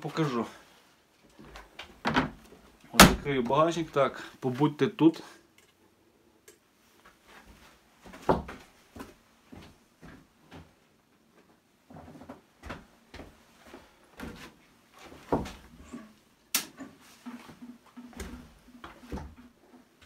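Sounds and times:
knocks and thumps of handling: 1.4s - 3.6s, 14.2s - 16.0s
sharp click: 16.5s - 16.7s.

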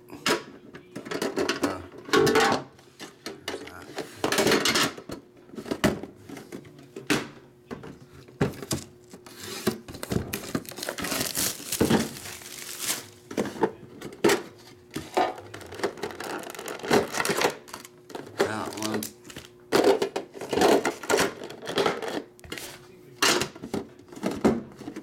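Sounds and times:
plastic wrapping crinkling: 10.0s - 13.3s.

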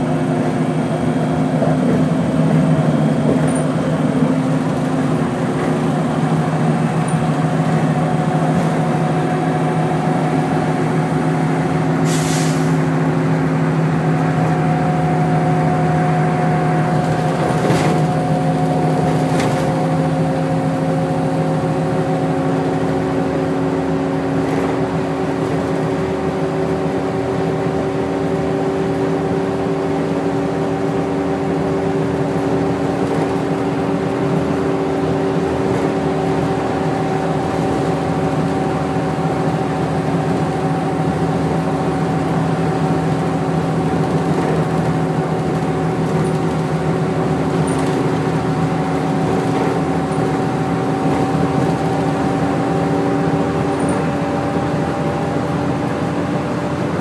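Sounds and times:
bus engine drone: 0.0s - 57.0s
short air hiss: 12.0s - 12.8s.

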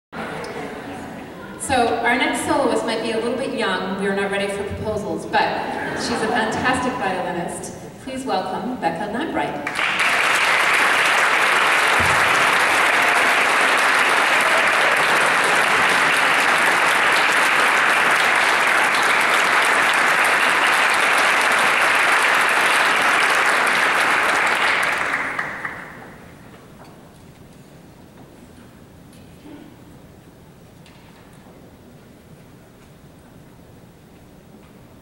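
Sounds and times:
audience applauding: 9.6s - 26.4s.

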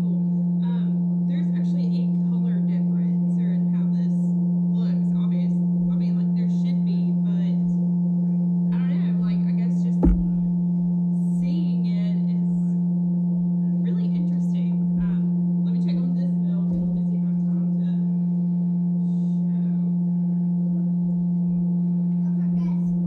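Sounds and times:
sharp knock: 10.0s - 10.4s.

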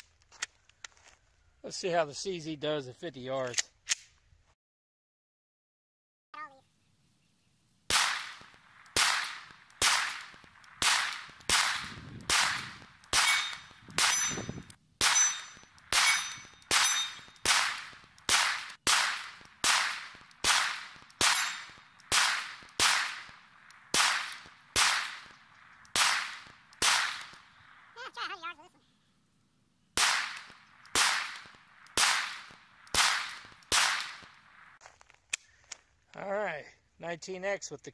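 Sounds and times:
pistol shots with echo: 7.9s - 14.4s, 15.0s - 27.7s, 30.0s - 34.4s.

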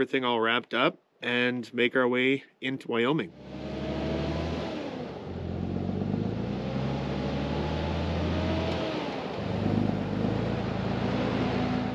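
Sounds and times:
vehicle engine accelerating: 3.3s - 11.9s.

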